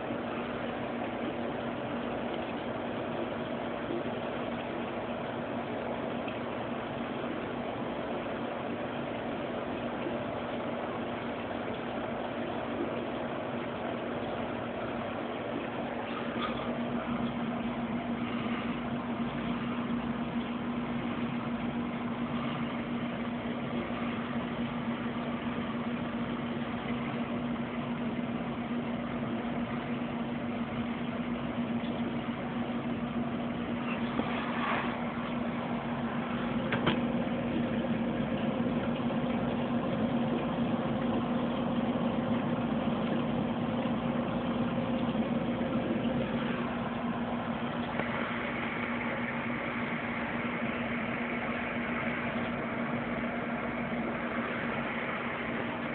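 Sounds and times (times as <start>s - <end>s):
aquarium pump hum: 0.0s - 55.9s.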